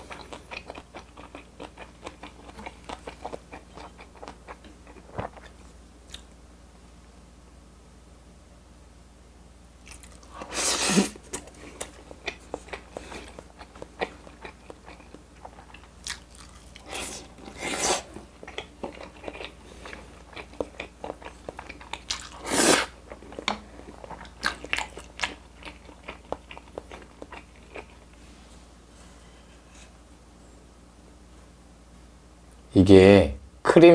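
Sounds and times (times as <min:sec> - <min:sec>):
wet chewing: 0:00.0 - 0:06.3, 0:09.8 - 0:28.2.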